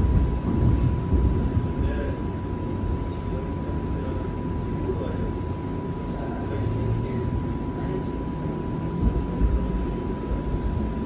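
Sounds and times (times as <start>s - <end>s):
heavy low bumps: 0.0s - 2.2s, 8.8s - 11.0s
streetcar rumbling on rails: 0.0s - 4.1s, 6.1s - 11.0s.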